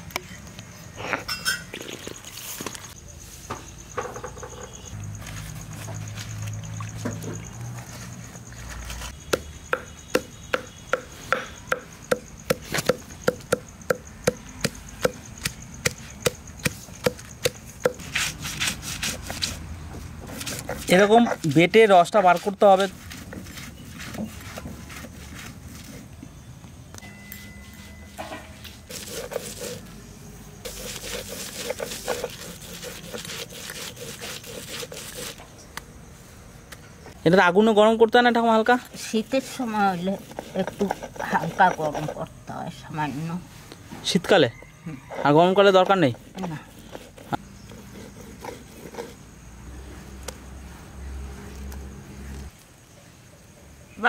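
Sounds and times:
stone roller knocking on stone slab: 9.3 - 15.2
stone roller scraping on slab: 28.6 - 29.9, 30.7 - 35.4, 38.9 - 42.3, 45.1 - 49.2
stone rolling and rubbing leaves: 28.9 - 29.8, 30.7 - 35.4.

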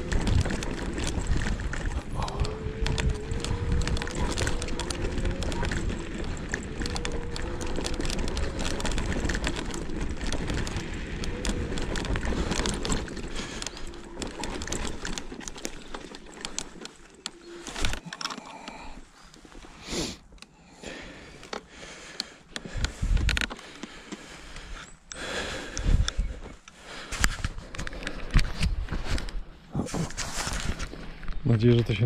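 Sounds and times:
scooter wheels rumbling and rattling: 0.0 - 32.0
scuffing and handling noises: 26.5 - 32.0.

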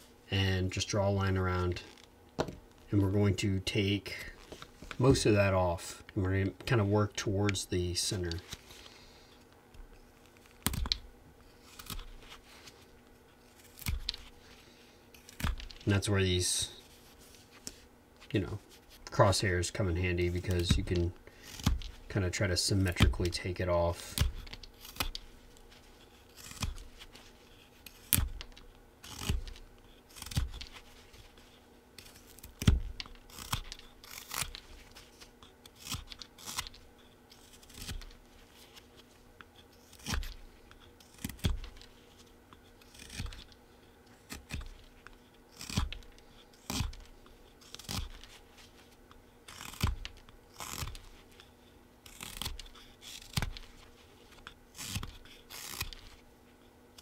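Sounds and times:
knife scraping wood: 11.6 - 14.4, 20.3 - 48.8, 49.5 - 56.2.

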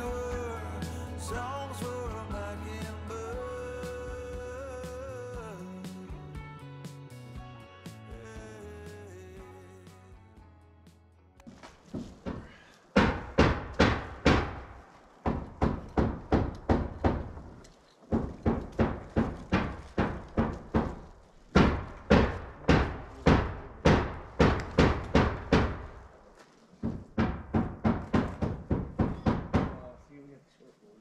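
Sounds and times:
hammer driving nails: 12.2 - 26.0, 26.8 - 29.9.

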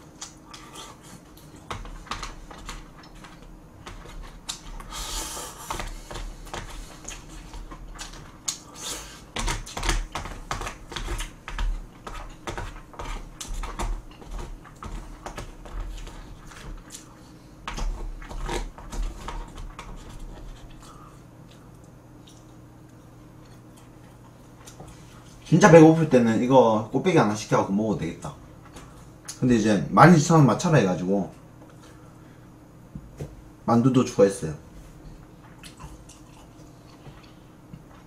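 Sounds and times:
person chewing: 0.0 - 25.4, 35.4 - 38.0.

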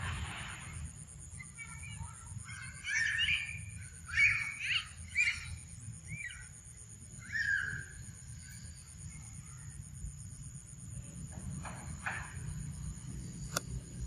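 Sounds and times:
high-pitched squeaky animal calls: 1.6 - 6.6, 7.2 - 8.0.

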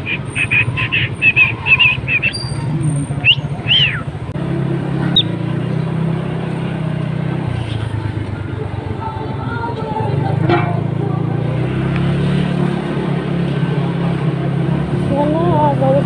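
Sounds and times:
cockatiel chirping: 0.0 - 2.6, 3.2 - 4.0
bird whistles rising and falling: 0.0 - 4.1
low engine hum: 0.0 - 16.0
low traffic rumble: 0.0 - 16.0.

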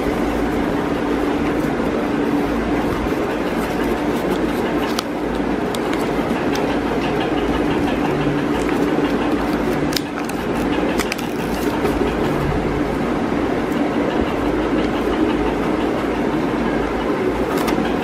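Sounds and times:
paper crackling: 0.0 - 12.6, 17.4 - 18.0
steady rumbling background noise: 0.0 - 18.0.

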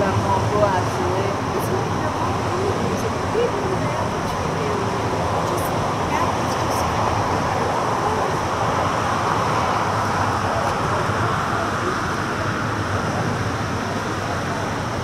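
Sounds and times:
road traffic: 0.0 - 15.0.

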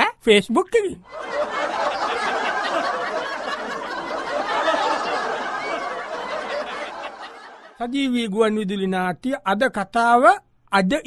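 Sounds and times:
crowd laughing and chattering: 1.1 - 7.8.

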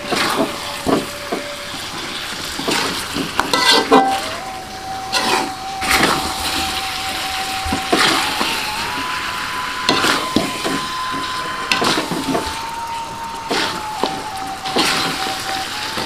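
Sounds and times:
food sizzling: 0.0 - 16.0
spatula scraping wok: 0.0 - 16.0.

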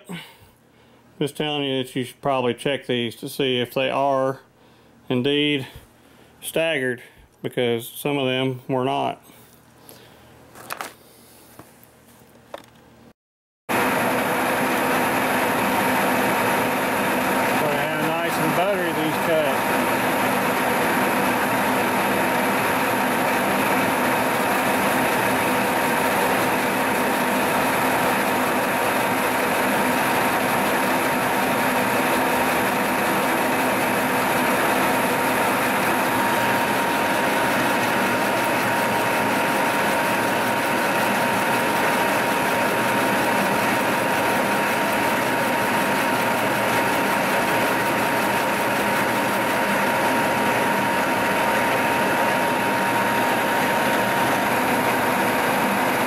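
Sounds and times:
milling machine cutting with whine: 13.7 - 56.0.

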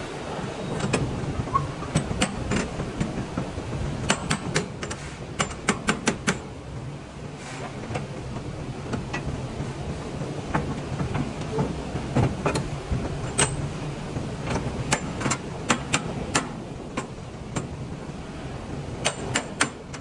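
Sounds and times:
metallic clicks and clanks: 0.7 - 6.6, 10.5 - 17.8, 19.0 - 20.0.

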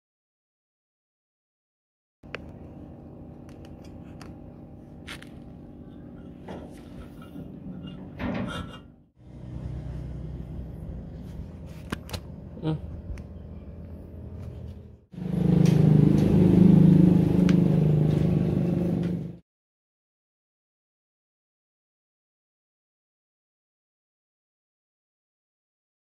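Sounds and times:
combine harvester engine running: 9.2 - 19.4.

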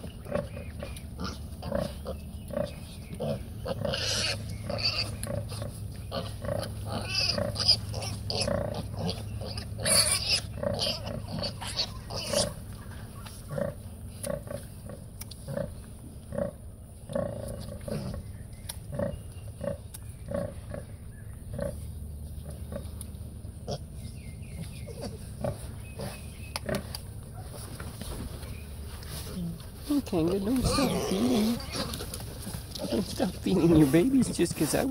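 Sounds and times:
sow grunting: 0.0 - 18.3, 29.2 - 34.9.

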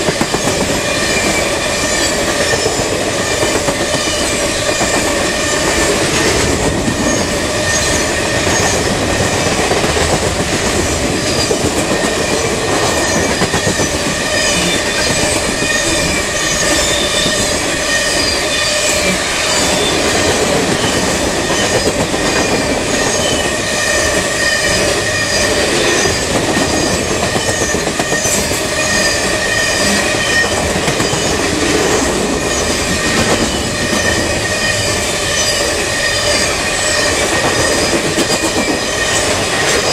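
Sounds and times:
train wheels clattering on rails: 0.0 - 39.9
high-pitched wheel squeal: 13.0 - 20.0, 20.8 - 31.4, 32.5 - 39.9.

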